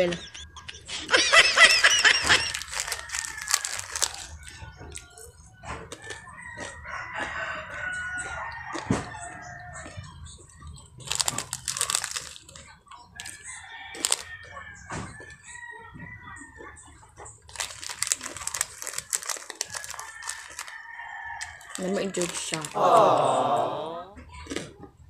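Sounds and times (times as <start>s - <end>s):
plastic snack packet crackling: 1.5s - 5.2s, 10.8s - 14.3s, 17.4s - 23.0s
rooster crowing: 2.2s - 4.2s, 6.3s - 9.9s, 19.8s - 22.0s, 22.7s - 24.0s.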